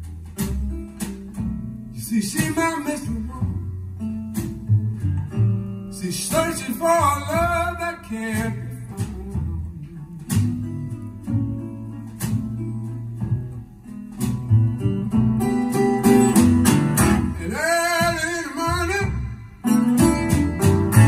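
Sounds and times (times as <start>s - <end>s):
bass guitar: 0.0s - 21.0s
plucked acoustic guitar: 0.0s - 21.0s
person singing: 17.3s - 19.4s.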